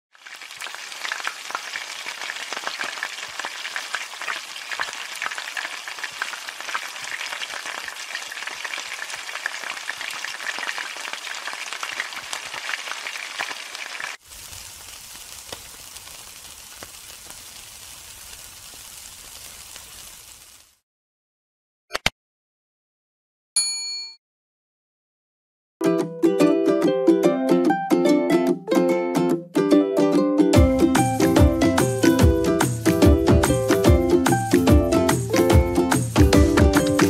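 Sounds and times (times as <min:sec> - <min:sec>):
food sizzling in hot oil: 0:00.1 - 0:20.8, 0:30.6 - 0:37.0.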